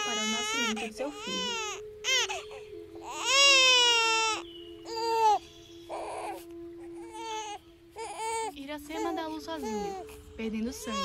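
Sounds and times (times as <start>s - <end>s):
newborn baby crying: 0.0s - 11.0s.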